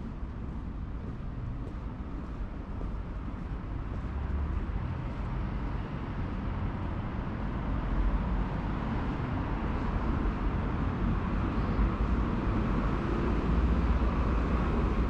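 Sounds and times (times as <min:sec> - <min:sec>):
city street traffic rumble: 0:00.0 - 0:15.0.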